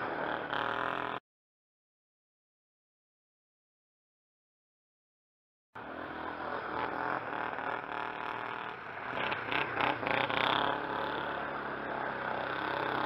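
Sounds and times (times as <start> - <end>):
quad engine revving: 0.0 - 1.2, 5.8 - 13.0.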